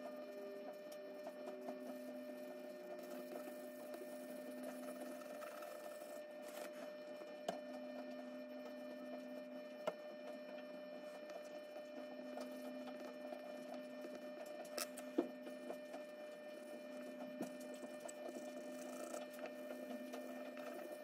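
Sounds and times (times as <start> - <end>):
steady electrical hum: 0.0 - 21.0
charcoal pencil scratching paper: 2.9 - 6.9.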